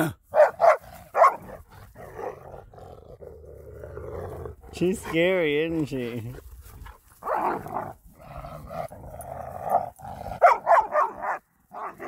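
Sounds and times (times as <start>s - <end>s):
dogs barking: 0.3s - 1.7s, 9.7s - 12.0s
dogs growling: 0.5s - 12.0s.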